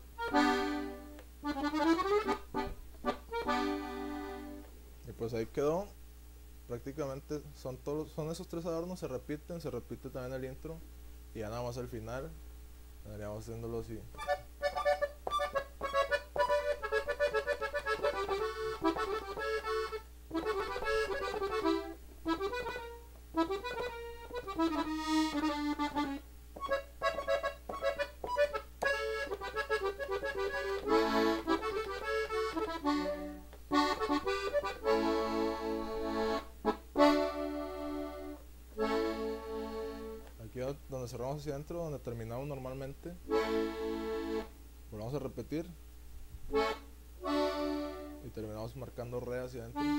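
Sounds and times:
button accordion playing: 0.2s - 4.7s, 14.2s - 40.3s, 43.3s - 44.5s, 46.5s - 48.4s.

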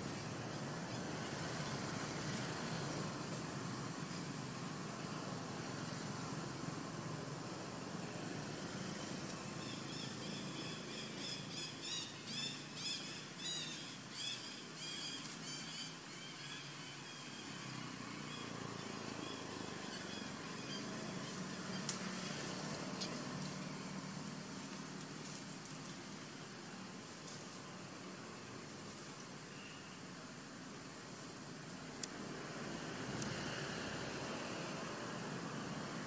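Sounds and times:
high chirping animal calls: 9.6s - 17.5s.

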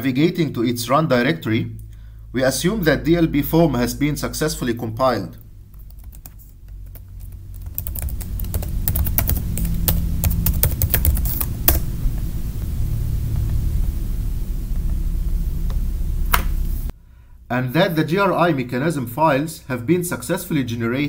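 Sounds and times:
low steady hum: 0.0s - 21.0s
keyboard typing clicks: 5.7s - 11.8s.

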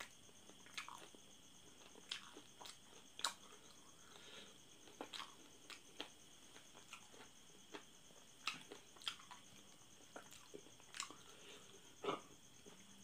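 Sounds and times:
wet chewing and smacking: 0.4s - 3.8s, 4.8s - 11.3s.

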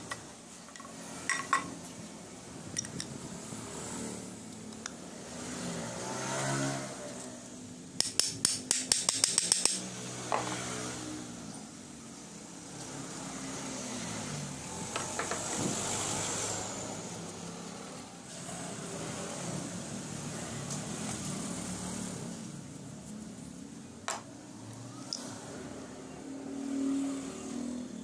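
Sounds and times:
rapid metallic tapping: 8.0s - 9.8s.

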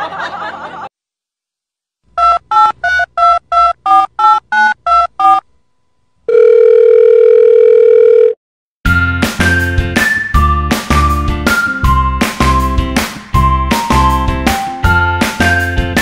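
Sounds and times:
telephone ring tone: 6.3s - 8.4s.

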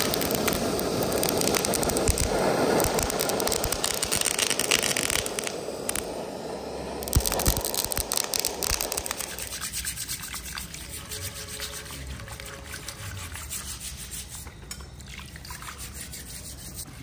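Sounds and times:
water running: 8.3s - 16.6s
steel wool scrubbing: 8.9s - 14.5s, 15.5s - 17.0s.

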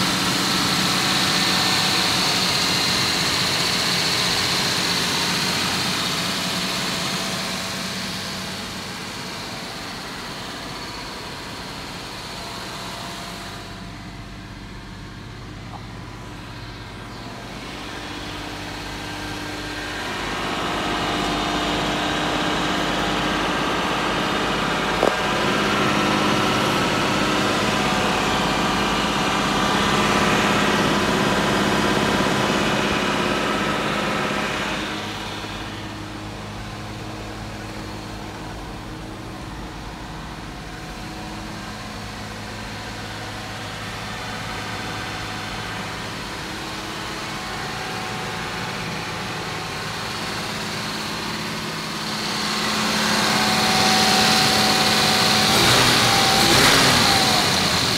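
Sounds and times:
car engine idling: 0.0s - 57.9s.

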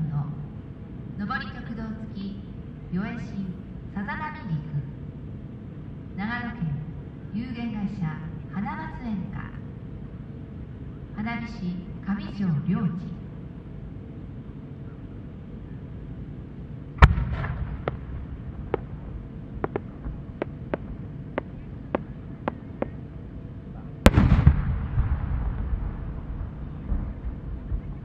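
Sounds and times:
firework burst boom: 17.0s - 18.8s, 24.0s - 27.0s
firework mortar bang: 17.0s - 19.0s, 24.0s - 26.0s
rumbling echo: 17.0s - 28.0s.

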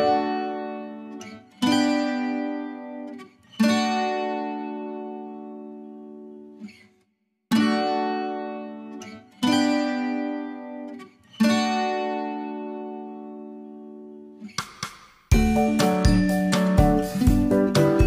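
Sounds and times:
acoustic guitar chords: 0.0s - 6.9s, 7.5s - 18.0s.

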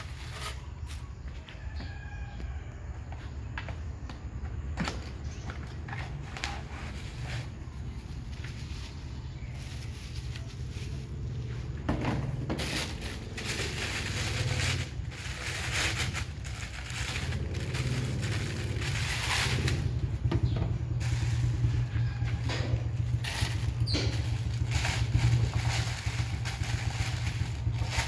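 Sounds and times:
steady low drone: 9.6s - 28.0s
plastic packaging crinkling: 12.6s - 19.9s.

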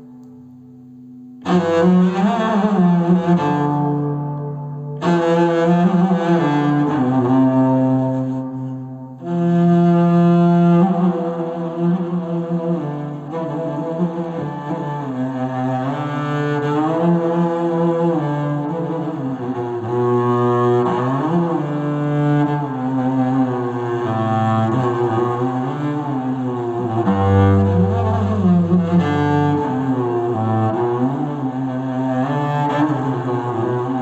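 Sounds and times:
bowed cello melody: 1.4s - 34.0s
low cello note: 24.7s - 31.6s.

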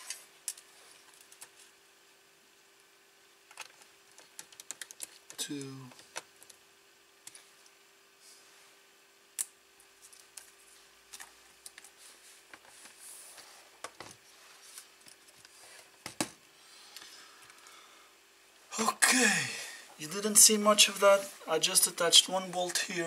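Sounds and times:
faint steady hum: 0.0s - 23.0s
small screws clicking and tapping: 3.5s - 6.6s.

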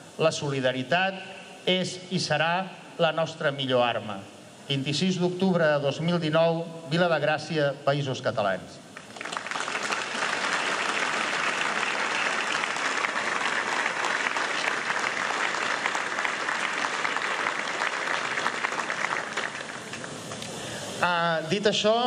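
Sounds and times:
crowd applauding: 9.0s - 20.5s.

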